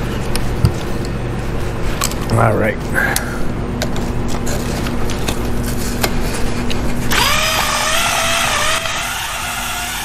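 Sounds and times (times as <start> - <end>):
cordless drill spinning: 7.1 - 10.0.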